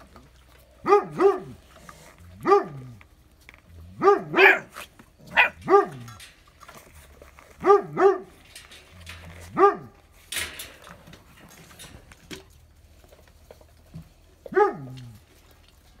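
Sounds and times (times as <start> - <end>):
puppy barking: 0.8 - 1.6, 2.4 - 2.9, 4.0 - 6.1, 7.6 - 8.3, 9.5 - 10.0, 14.5 - 15.0.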